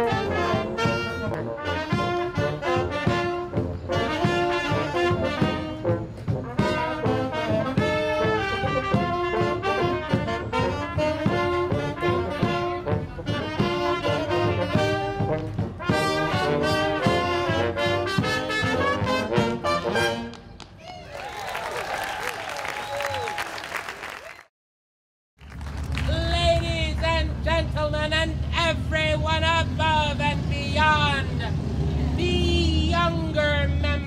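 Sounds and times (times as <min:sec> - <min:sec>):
saxophones: 0:00.0 - 0:20.3
tuba: 0:00.0 - 0:20.4
trumpet: 0:00.0 - 0:20.6.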